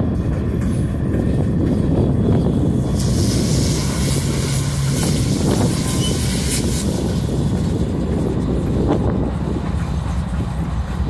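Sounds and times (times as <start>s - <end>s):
diesel locomotives rumbling: 0.0s - 11.0s
bright hiss: 2.9s - 7.3s.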